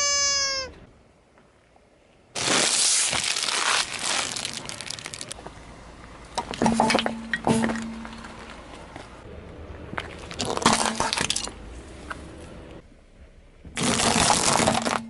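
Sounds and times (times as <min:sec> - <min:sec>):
plastic bag crinkling and crackling: 0:02.4 - 0:05.4, 0:13.8 - 0:15.0
sharp cracks and squeak of foam: 0:02.4 - 0:05.4, 0:13.8 - 0:15.0.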